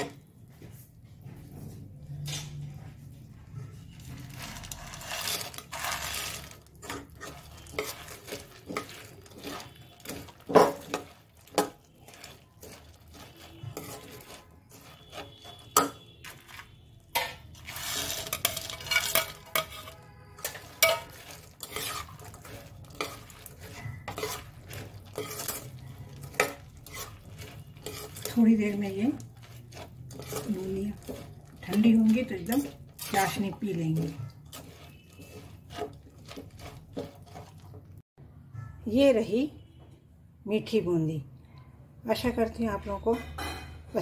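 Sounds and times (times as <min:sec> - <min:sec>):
spatula scraping a steel pan: 0:03.9 - 0:38.0.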